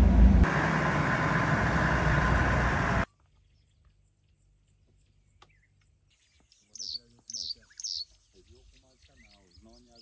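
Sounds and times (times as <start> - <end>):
vehicle engine and road rumble: 0.0 - 5.4
faint bird chirp: 3.1 - 10.0.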